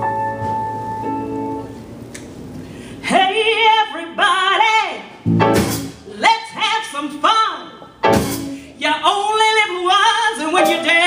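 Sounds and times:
electric guitar: 0.0s - 2.4s, 5.2s - 6.0s
woman singing blues: 3.0s - 5.2s, 6.1s - 11.0s
drums: 5.2s - 6.7s, 8.0s - 8.6s.

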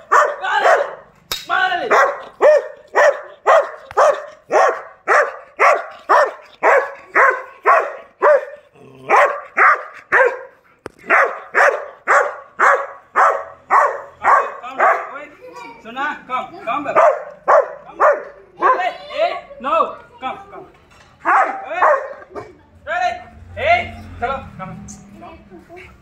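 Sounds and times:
dog barking: 0.0s - 1.1s, 1.8s - 15.2s, 16.9s - 18.9s, 21.2s - 22.5s.

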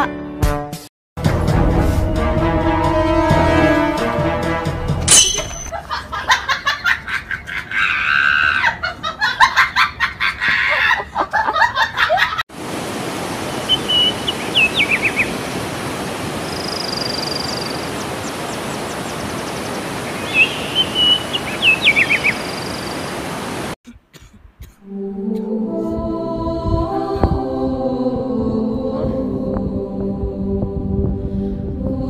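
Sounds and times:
stream water rushing: 12.5s - 23.8s
whistled bird calls: 13.6s - 15.3s, 16.5s - 23.0s.

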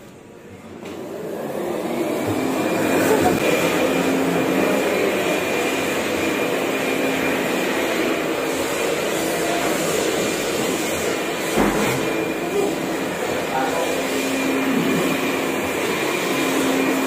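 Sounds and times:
mechanical hum with high whine: 0.0s - 5.0s.

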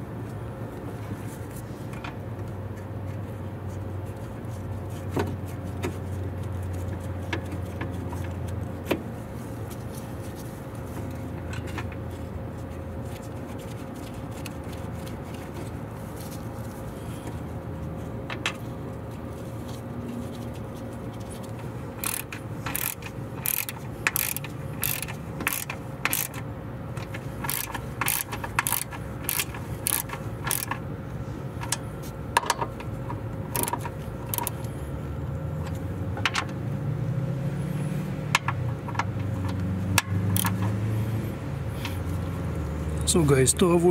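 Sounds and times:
hand ratchet clicking: 22.0s - 26.4s, 27.0s - 30.8s, 33.5s - 34.6s, 38.3s - 40.7s.

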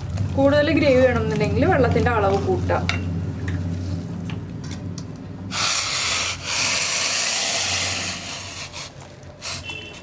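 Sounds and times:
sauce sizzling with rough hiss: 5.5s - 9.7s.

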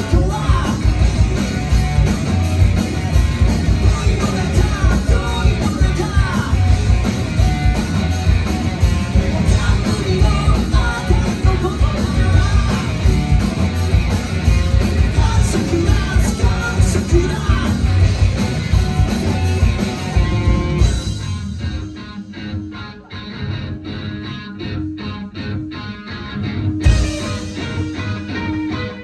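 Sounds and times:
person singing lead vocal: 0.0s - 1.5s, 3.8s - 6.8s, 9.3s - 13.3s, 15.0s - 18.0s
rock band playing live: 0.0s - 29.0s.

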